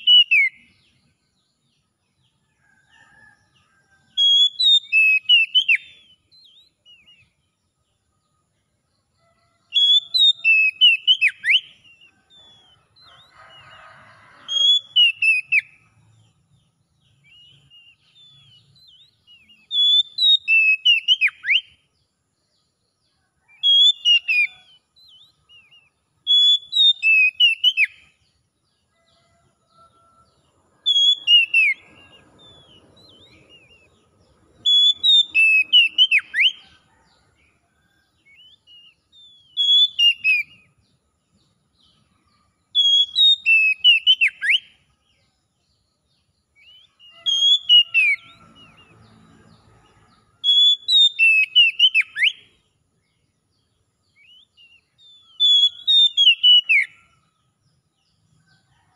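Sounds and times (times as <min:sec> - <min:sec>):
bird singing whistled notes: 0:00.0 - 0:01.2, 0:04.2 - 0:07.5, 0:09.7 - 0:16.1, 0:17.0 - 0:21.9, 0:23.4 - 0:28.2, 0:30.8 - 0:36.8, 0:38.2 - 0:40.9, 0:41.8 - 0:49.0, 0:50.4 - 0:52.6, 0:54.1 - 0:57.3.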